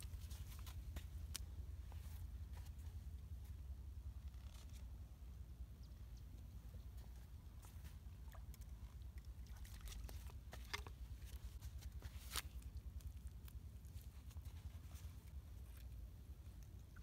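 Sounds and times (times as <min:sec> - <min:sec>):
faint low rumble: 0:00.0 - 0:17.0.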